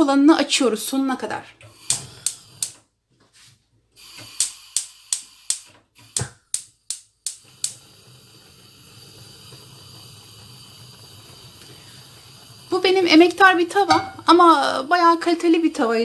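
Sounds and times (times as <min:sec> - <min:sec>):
gas flame hissing: 0:01.0 - 0:02.9, 0:04.0 - 0:16.0
gas hob igniter clicking: 0:01.6 - 0:02.9, 0:04.0 - 0:14.6.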